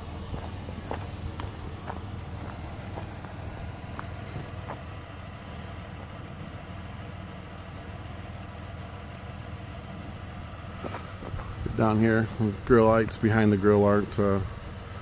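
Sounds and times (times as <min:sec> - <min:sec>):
car engine idling: 0:00.0 - 0:15.0.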